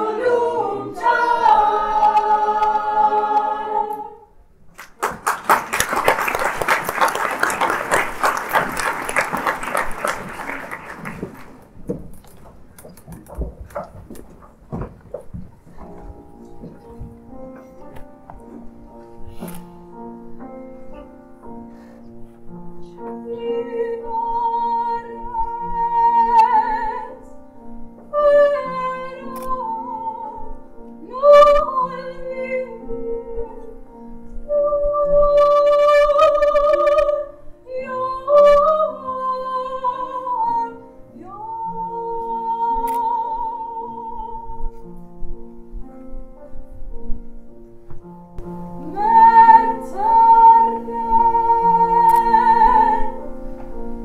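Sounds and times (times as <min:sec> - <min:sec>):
woman singing with vibrato: 0:23.2 - 0:27.3, 0:28.1 - 0:33.8, 0:34.5 - 0:44.8, 0:48.6 - 0:53.3.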